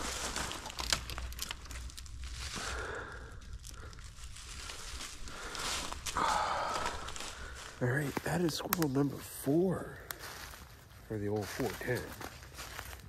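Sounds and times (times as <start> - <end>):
sticks snapping and scraping: 0.0 - 9.3, 10.0 - 10.7
dry leaves crunching: 0.0 - 13.0.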